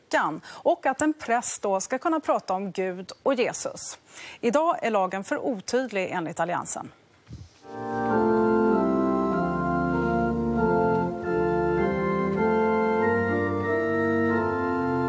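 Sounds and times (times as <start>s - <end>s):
church organ playing a hymn: 7.6s - 15.0s.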